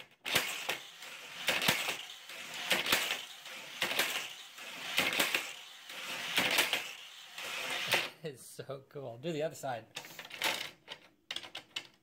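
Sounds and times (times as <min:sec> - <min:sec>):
toy car rattling on plastic track: 0:00.0 - 0:08.2, 0:10.0 - 0:12.0
toy launcher clacking: 0:00.0 - 0:08.2.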